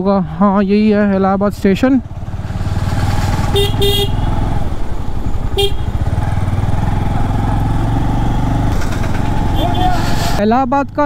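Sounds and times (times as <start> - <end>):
motorcycle engine running: 0.8 - 10.0
vehicle horn beeps: 3.5 - 4.3, 5.5 - 6.0, 9.5 - 10.0.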